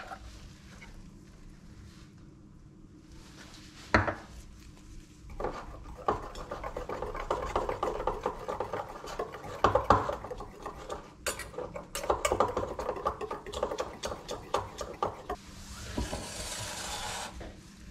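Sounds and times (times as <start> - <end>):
whisk scraping a metal bowl: 5.3 - 15.4.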